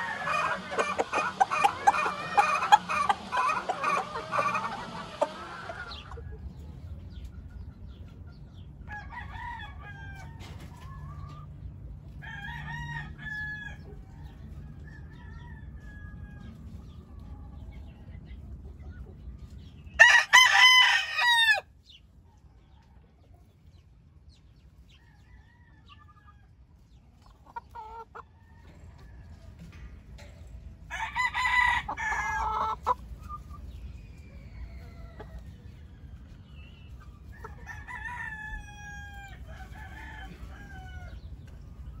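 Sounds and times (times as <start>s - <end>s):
rooster crowing: 0.0s - 0.8s, 20.0s - 21.6s, 37.6s - 41.1s
soft clucking calls: 0.0s - 6.5s.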